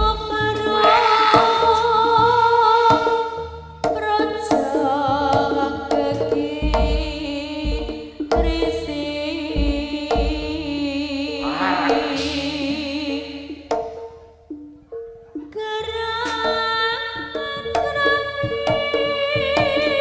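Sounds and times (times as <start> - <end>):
deep drum strokes: 9.6 - 13.7
wavering high melody: 11.4 - 13.7.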